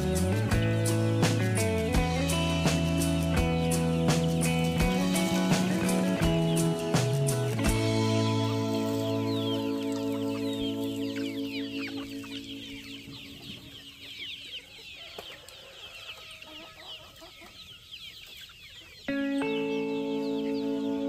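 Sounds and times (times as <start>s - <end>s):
music: 0.0s - 14.3s, 19.1s - 21.0s
chickens chirping: 0.0s - 21.0s.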